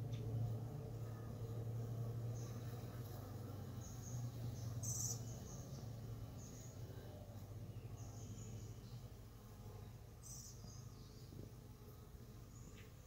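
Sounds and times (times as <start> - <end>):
bees buzzing: 0.0 - 10.2
faint bird chirps: 3.7 - 9.1, 9.8 - 11.5.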